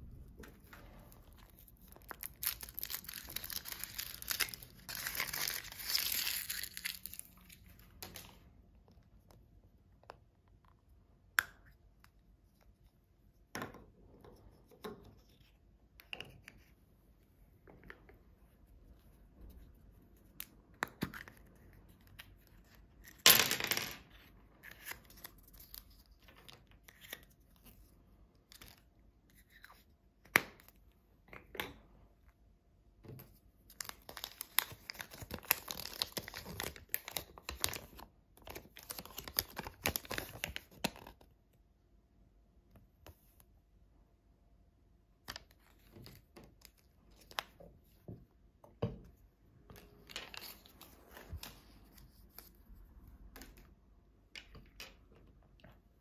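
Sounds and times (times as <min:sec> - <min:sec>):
paper crinkling: 0:01.1 - 0:07.8.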